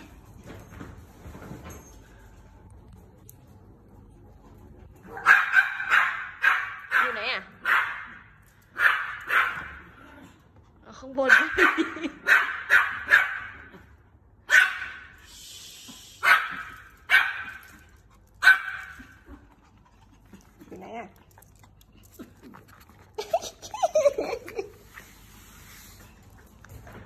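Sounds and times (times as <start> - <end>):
small dog barking: 5.1 - 8.2, 8.8 - 9.8, 11.3 - 13.7, 14.5 - 15.1, 16.2 - 17.7, 18.4 - 19.1.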